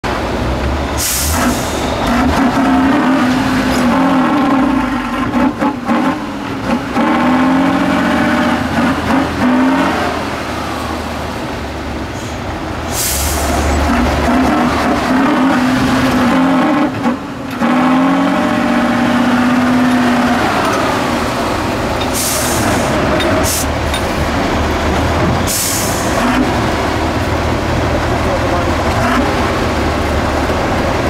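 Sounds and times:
truck diesel engine under load: 0.0 - 31.0
loud hiss of air: 1.0 - 2.0, 12.2 - 13.7, 22.2 - 23.7, 25.5 - 26.2.

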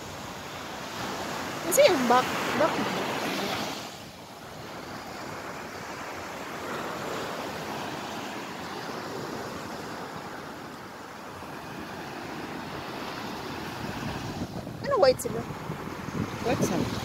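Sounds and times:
ocean surf washing on shore: 0.0 - 17.0
wind on microphone: 11.6 - 17.0.

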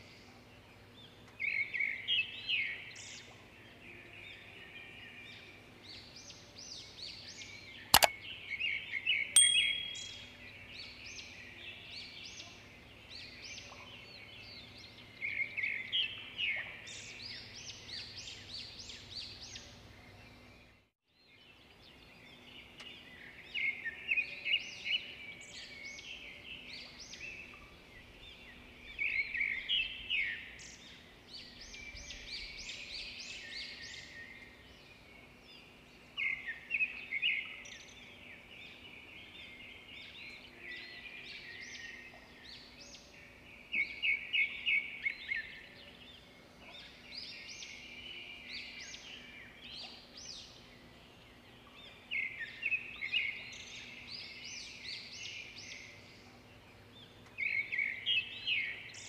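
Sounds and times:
small birds chirping: 0.0 - 20.6.

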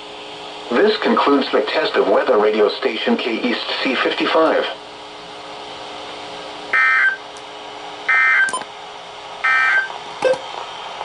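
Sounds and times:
digital data tone bursts: 9.4 - 10.4.

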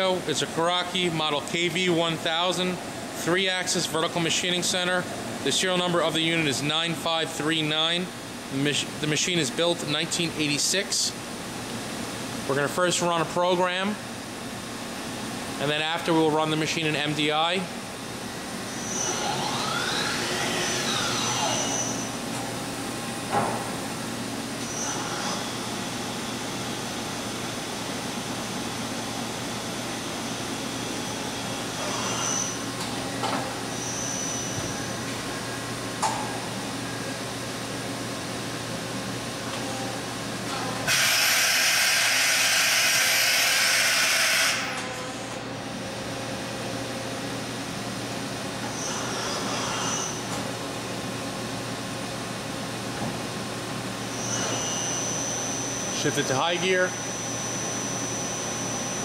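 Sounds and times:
machine hum: 0.0 - 43.1, 43.8 - 59.0
short high whines and clicks: 18.7 - 22.2, 54.1 - 56.4.

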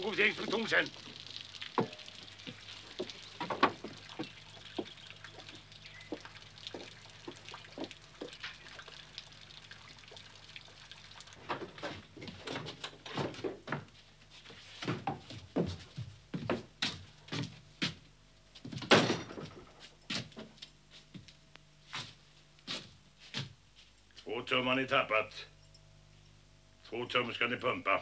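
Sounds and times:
water dripping: 0.0 - 13.0.

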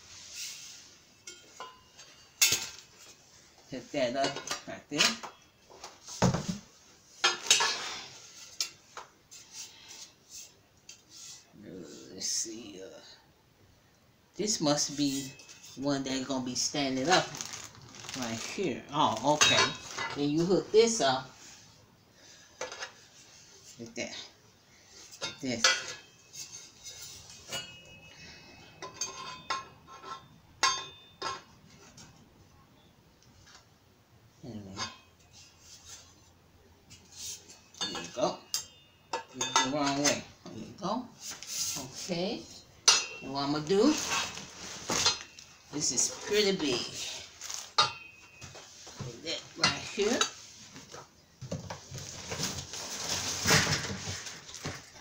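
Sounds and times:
metal tubes clinking together: 1.2 - 3.0, 25.2 - 31.5, 36.9 - 40.3, 42.8 - 48.7.

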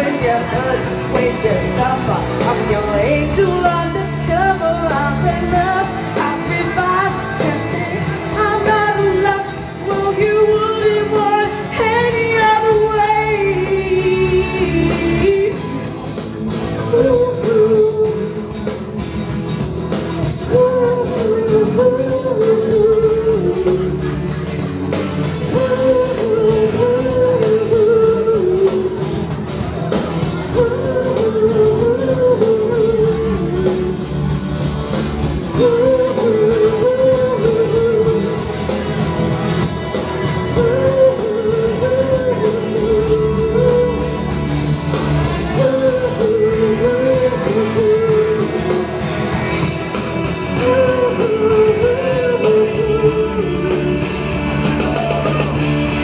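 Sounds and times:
woman singing into microphone: 0.0 - 18.8, 20.2 - 24.5, 25.4 - 29.2, 30.2 - 34.2, 35.4 - 38.7, 40.5 - 44.6, 45.2 - 49.4, 50.2 - 54.2
rock backing track: 0.0 - 56.0.

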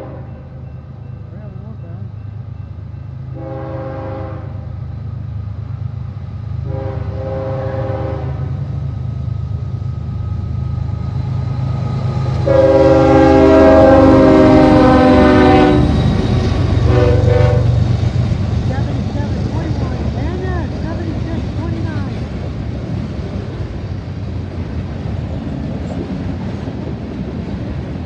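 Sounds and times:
locomotive air horn blasts: 0.0 - 0.4, 3.3 - 4.7, 6.7 - 8.6, 12.4 - 16.0, 16.8 - 17.8
diesel engines rumbling: 0.0 - 3.2, 5.0 - 28.0.

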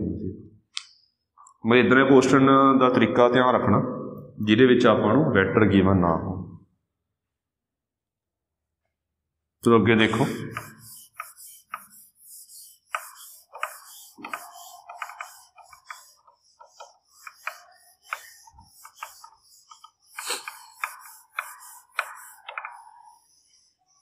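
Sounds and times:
duster wiping whiteboard: 10.0 - 24.0.

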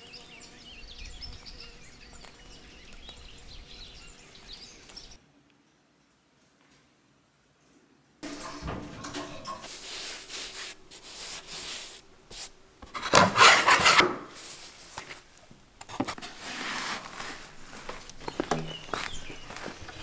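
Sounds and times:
bench scraper scraping board: 8.3 - 14.4, 15.9 - 17.5
hands rubbing dough: 9.6 - 12.6, 16.4 - 20.0.

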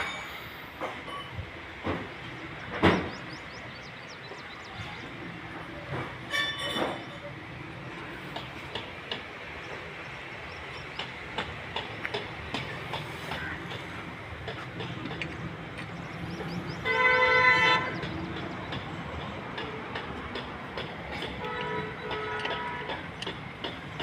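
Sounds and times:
vehicle horn: 6.3 - 6.8, 16.8 - 18.0, 21.4 - 23.0.

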